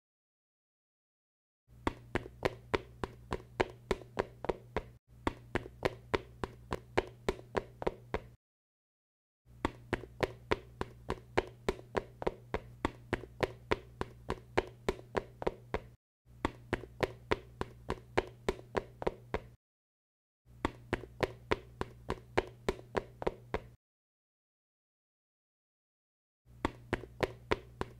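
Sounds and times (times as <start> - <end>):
rapid sharp taps: 1.8 - 8.4, 9.6 - 19.6, 20.6 - 23.8, 26.6 - 27.9.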